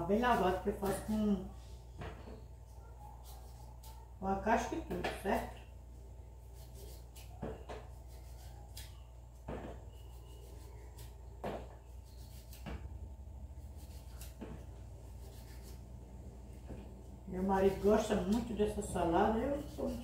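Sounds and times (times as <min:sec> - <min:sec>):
knife cutting vegetable: 0:06.4 - 0:09.0, 0:09.9 - 0:13.0, 0:13.6 - 0:15.8, 0:17.4 - 0:20.0.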